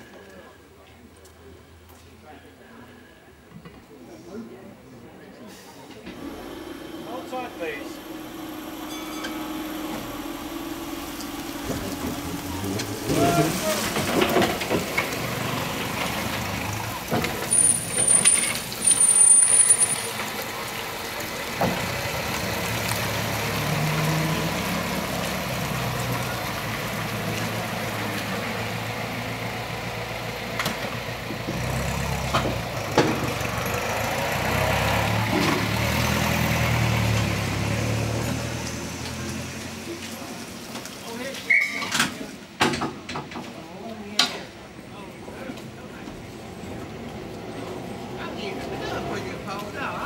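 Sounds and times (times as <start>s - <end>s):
engine knocks and clatter with whine: 6.1s - 13.1s, 13.8s - 41.0s
low engine running: 6.1s - 19.1s.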